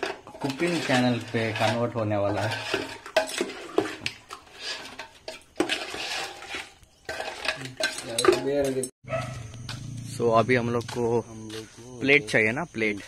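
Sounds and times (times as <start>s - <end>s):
metal spoon scraping pot: 0.0s - 8.9s.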